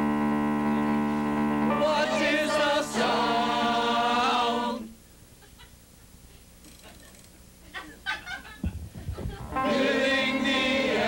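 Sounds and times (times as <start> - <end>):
sustained chord: 0.0 - 4.4, 9.4 - 11.0
voices singing: 1.7 - 5.0, 9.2 - 11.0.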